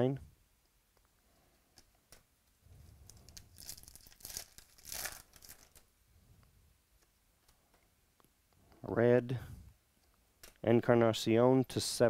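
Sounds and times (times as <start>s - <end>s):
trading cards rustling and clicking: 3.0s - 5.9s.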